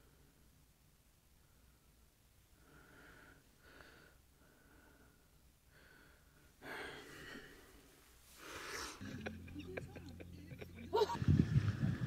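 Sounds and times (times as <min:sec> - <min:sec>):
hissing breaths close to microphone: 0:02.6 - 0:09.1.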